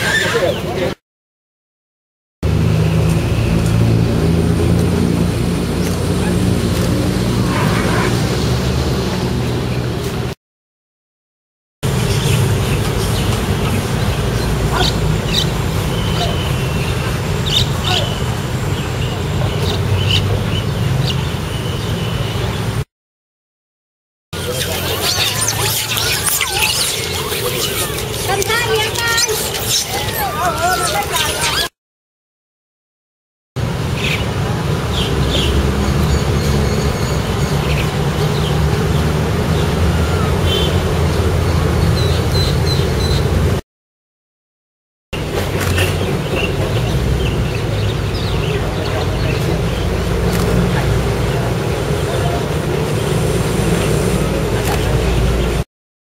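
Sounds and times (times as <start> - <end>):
traffic rumble: 2.4 - 10.4, 11.8 - 22.9, 24.4 - 31.7, 33.6 - 43.6, 45.2 - 55.7.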